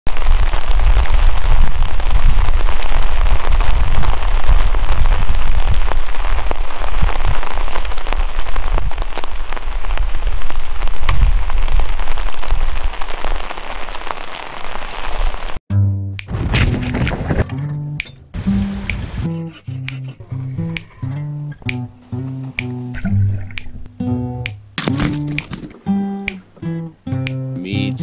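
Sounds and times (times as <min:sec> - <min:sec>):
rain patter: 0:00.1 - 0:15.6, 0:18.4 - 0:19.3.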